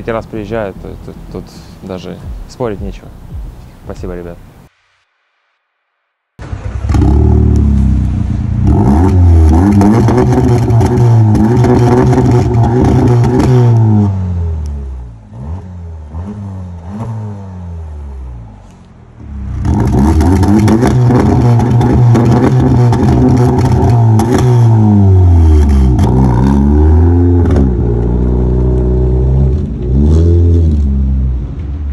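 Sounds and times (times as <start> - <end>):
exhaust overrun pops: 6.4 - 14.8, 18.6 - 26.7
car engine revving: 6.4 - 31.9.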